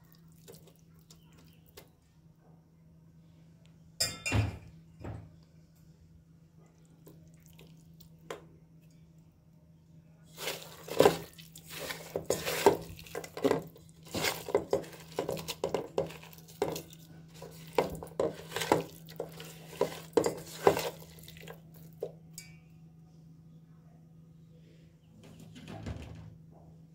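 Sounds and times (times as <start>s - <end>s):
hand knocking and scraping metal pot: 10.4s - 22.6s.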